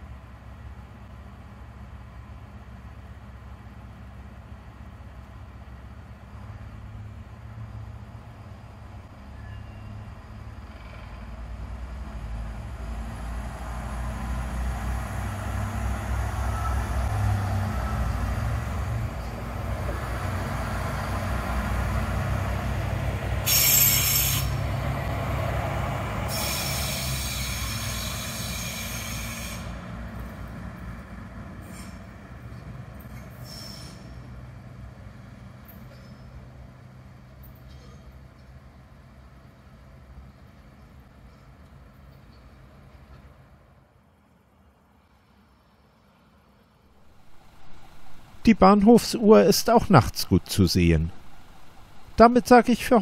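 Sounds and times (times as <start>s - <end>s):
diesel railcar engines running: 0.0s - 53.0s
shrill wheel squeal: 9.2s - 11.2s, 16.4s - 18.2s, 23.4s - 24.7s, 26.3s - 29.8s, 33.1s - 34.2s, 35.8s - 36.4s
train wheels rolling on rails: 11.7s - 43.9s, 47.0s - 49.2s.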